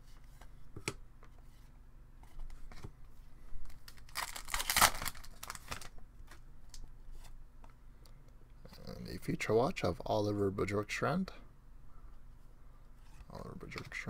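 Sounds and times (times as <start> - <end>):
card packaging crinkling and tearing: 3.6 - 6.8.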